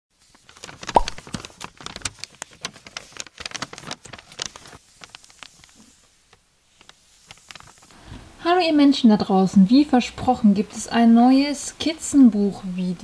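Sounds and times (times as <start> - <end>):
paper crumpling: 0.2 - 8.0.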